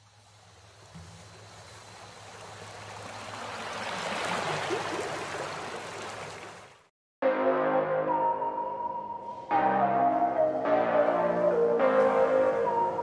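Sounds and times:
stream-like water noise: 0:00.0 - 0:06.9.

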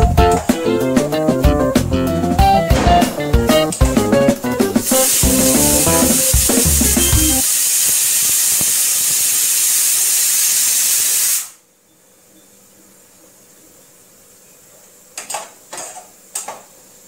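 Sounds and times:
pressure cooker whistle hissing: 0:04.8 - 0:11.6.

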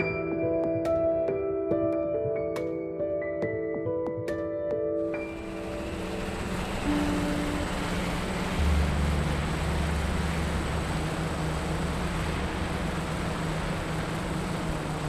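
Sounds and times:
quadcopter propellers humming: 0:05.1 - 0:15.0
deep rumble: 0:05.3 - 0:15.0.

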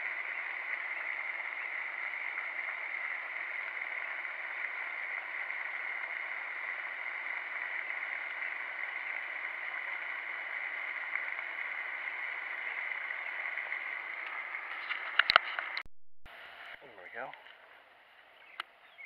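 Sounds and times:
fountain water splashing: 0:00.0 - 0:15.7.

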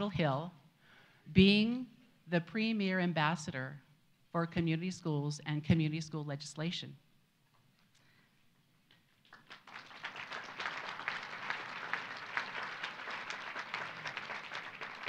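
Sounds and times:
audience applause: 0:09.3 - 0:15.0.

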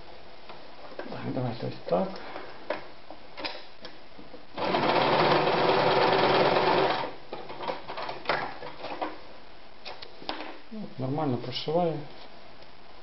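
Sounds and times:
sewing machine stitching: 0:04.6 - 0:09.0.

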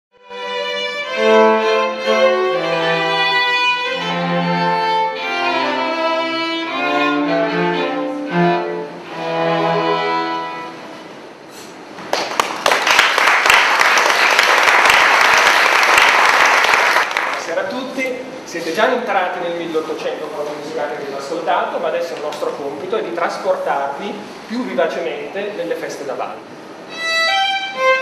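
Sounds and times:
string trio playing: 0:00.2 - 0:11.4, 0:17.3 - 0:28.0
audience applause: 0:12.1 - 0:17.6.

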